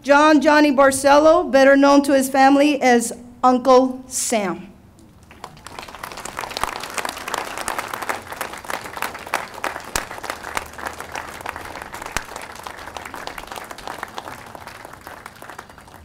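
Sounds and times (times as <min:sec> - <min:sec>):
crowd applauding: 0:05.2 - 0:16.0.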